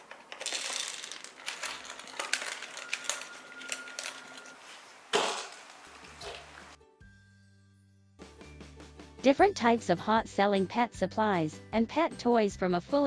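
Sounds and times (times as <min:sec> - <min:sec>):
plastic feeder clicking and rattling: 0:00.0 - 0:04.2.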